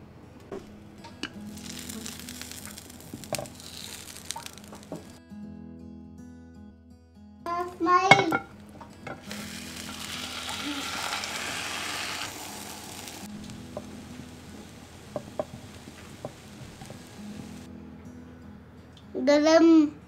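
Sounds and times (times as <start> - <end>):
omelette sizzling in a frying pan: 1.4 - 5.2, 8.1 - 17.7.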